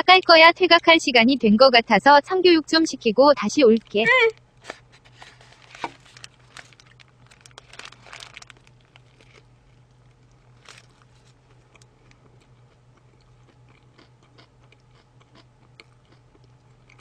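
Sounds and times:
crunchy bites: 4.6 - 17.0
person chewing: 4.8 - 17.0.

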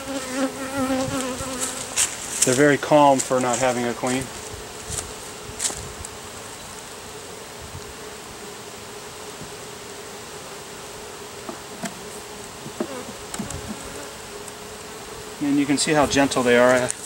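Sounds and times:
honeybees humming: 0.0 - 17.0
hive tool knocking wooden frame: 11.4 - 14.0.

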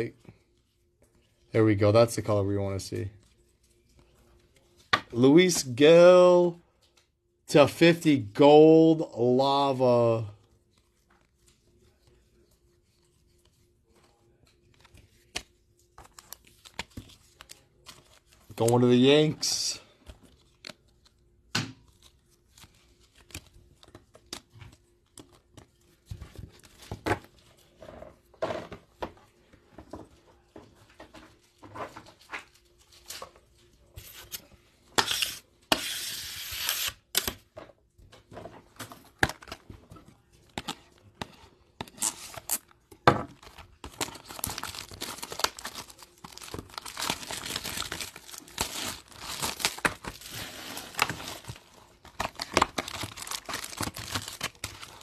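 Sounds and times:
cards rustling and clicking: 10.6 - 27.4, 43.4 - 55.0
foil wrapper crinkling and tearing: 43.4 - 55.0.

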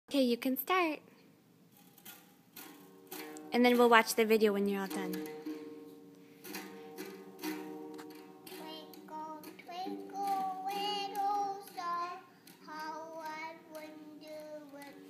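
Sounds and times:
acoustic guitar strumming: 1.7 - 15.0
child singing: 8.4 - 15.0.

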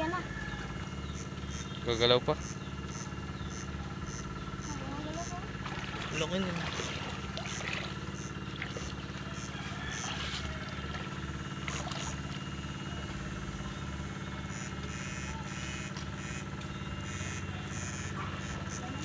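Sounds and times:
electric rig humming: 0.0 - 19.0
pulsing low buzz: 0.0 - 19.0.

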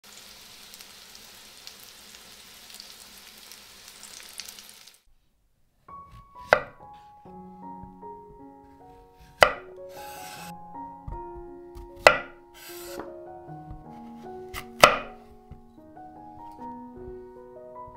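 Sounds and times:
zucchini sizzling in oil: 0.0 - 5.1
light background music: 5.9 - 17.9
knife chopping on wooden board: 6.1 - 6.8, 9.3 - 9.7, 11.3 - 13.1, 14.5 - 15.3.

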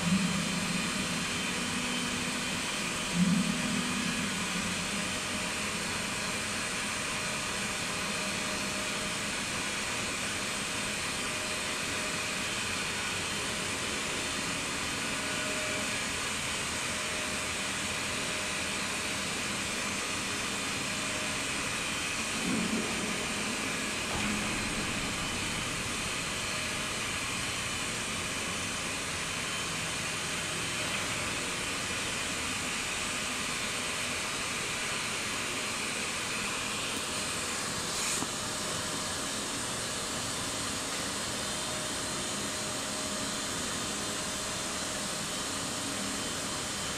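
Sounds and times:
short low knock: 22.4 - 26.7.

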